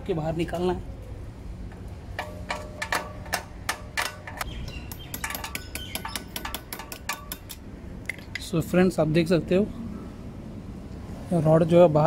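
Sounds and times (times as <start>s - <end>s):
hammer tapping metal tool: 2.2s - 7.6s.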